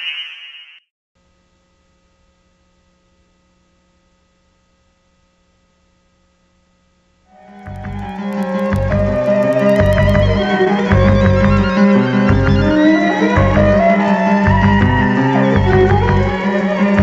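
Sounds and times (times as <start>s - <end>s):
faint electrical hum: 1.2s - 7.4s
bowed string music: 7.4s - 17.0s.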